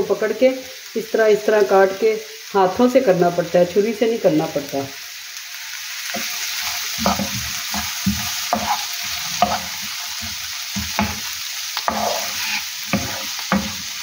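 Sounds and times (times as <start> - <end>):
onions sizzling in hot oil: 0.0 - 14.0
wooden spoon scraping a pan: 6.1 - 14.0.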